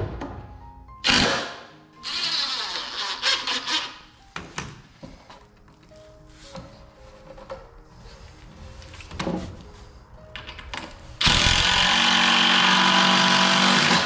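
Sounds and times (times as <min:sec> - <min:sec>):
impact driver driving screw into wood: 0:01.0 - 0:03.8.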